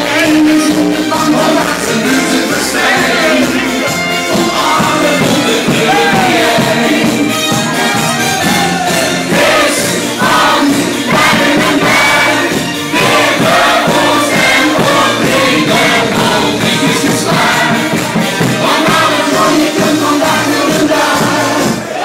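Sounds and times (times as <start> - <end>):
group of voices singing: 0.0 - 22.0
party music: 0.0 - 22.0.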